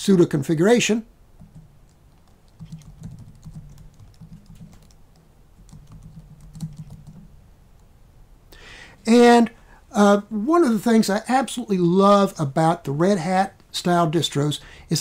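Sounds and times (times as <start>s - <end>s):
keyboard keystrokes: 1.4s - 7.3s.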